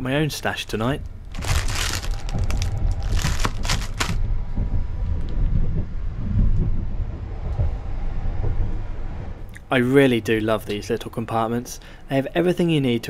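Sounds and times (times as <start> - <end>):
low train rumble: 0.0 - 13.0
plastic wrapper crinkling: 1.3 - 4.2.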